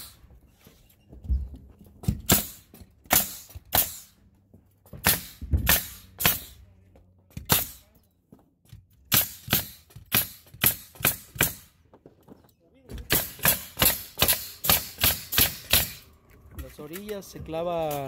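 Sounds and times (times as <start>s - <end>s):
nail gun firing: 2.1s - 4.1s, 5.0s - 6.6s, 7.4s - 7.8s, 9.1s - 11.7s, 13.0s - 16.0s.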